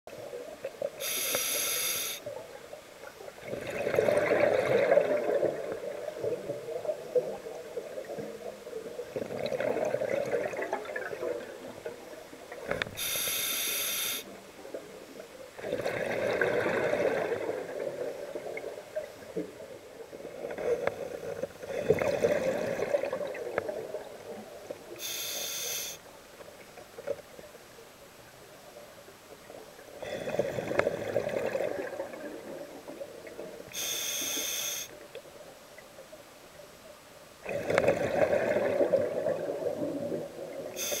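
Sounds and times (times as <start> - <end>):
regulator hiss: 1.0 - 2.3, 12.9 - 14.4, 25.0 - 26.1, 33.7 - 35.0, 40.8 - 41.0
exhaled bubbles burbling: 3.4 - 8.0, 9.0 - 11.5, 15.6 - 18.9, 20.2 - 24.2, 30.2 - 33.4, 37.4 - 40.8.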